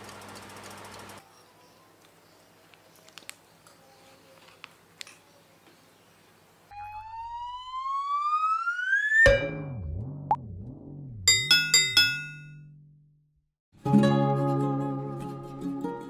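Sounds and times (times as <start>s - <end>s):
rising whistle sound effect: 6.7s - 10.4s.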